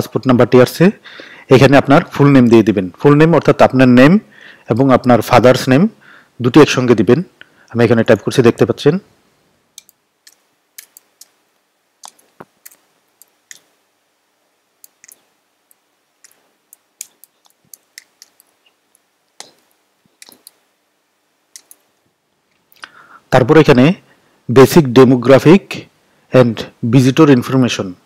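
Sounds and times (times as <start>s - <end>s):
computer keyboard keystrokes: 9.8s - 11.4s, 12.0s - 13.7s, 14.8s - 18.6s, 19.4s - 20.6s, 21.5s - 21.9s.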